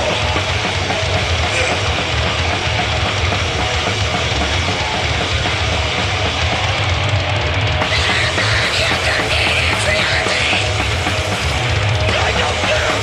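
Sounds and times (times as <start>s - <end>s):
bass guitar: 0.0s - 13.0s
distorted guitars: 0.0s - 13.0s
drum kit: 0.0s - 13.0s.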